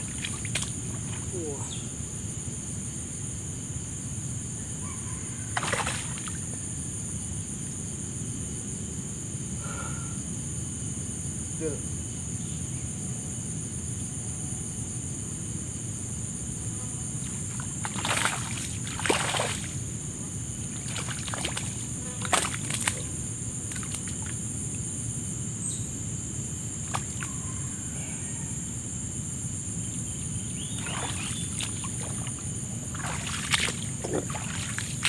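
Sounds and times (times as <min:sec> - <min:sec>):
water splashing and sloshing: 0:00.0 - 0:01.4, 0:05.5 - 0:06.6, 0:17.1 - 0:24.9, 0:26.6 - 0:27.4, 0:29.8 - 0:35.0.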